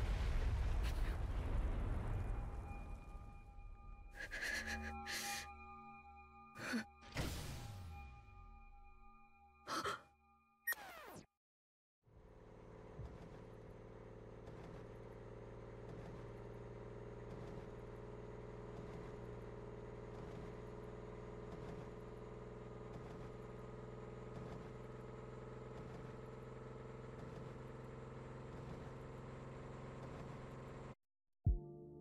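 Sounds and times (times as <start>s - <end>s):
low electronic drone: 2.2s - 9.8s.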